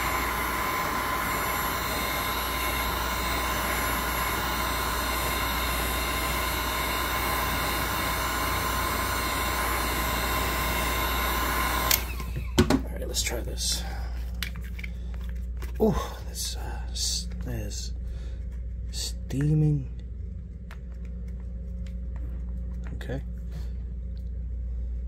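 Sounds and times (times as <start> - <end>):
heat gun blowing: 0.0 - 12.6.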